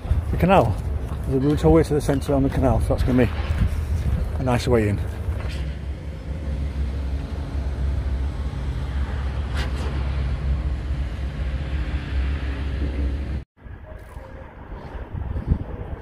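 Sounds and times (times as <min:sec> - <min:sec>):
low background rumble: 0:02.7 - 0:13.4.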